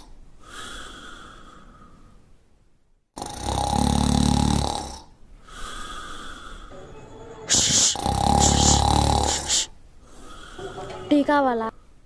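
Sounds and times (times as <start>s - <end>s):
quiet breath: 0.0s - 2.4s, 5.3s - 6.9s, 7.5s - 11.0s
person snoring loudly: 3.2s - 5.1s, 7.5s - 9.7s.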